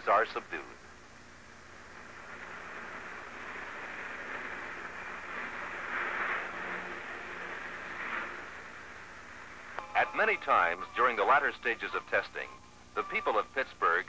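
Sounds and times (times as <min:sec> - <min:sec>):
tire noise hiss: 0:00.0 - 0:14.0.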